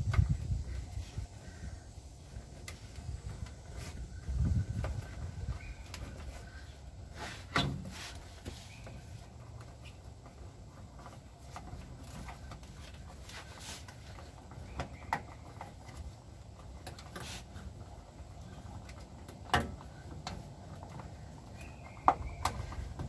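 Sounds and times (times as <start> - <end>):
scuffs and light knocks: 2.6 - 15.4.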